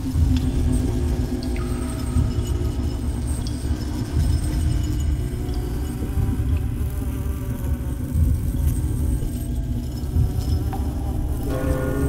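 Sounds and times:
low wavering buzzing drone: 0:11.4 - 0:12.0.

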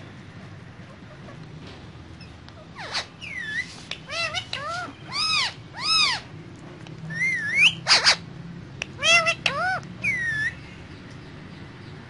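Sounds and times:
parakeets whistling calls: 0:02.2 - 0:06.3, 0:07.1 - 0:08.3, 0:09.0 - 0:10.7
parakeet harsh screech: 0:07.2 - 0:08.2.

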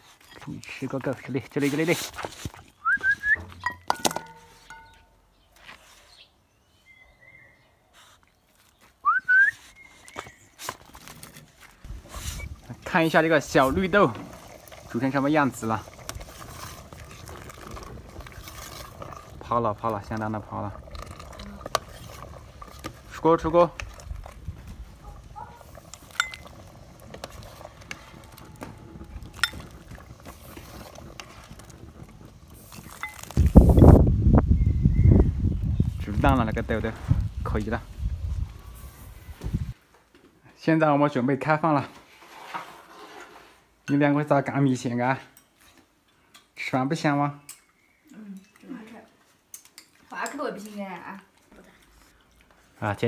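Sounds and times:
person whistling: 0:02.8 - 0:03.6, 0:09.0 - 0:10.1
metal ladle clinking: 0:03.6 - 0:05.2, 0:26.1 - 0:26.6.

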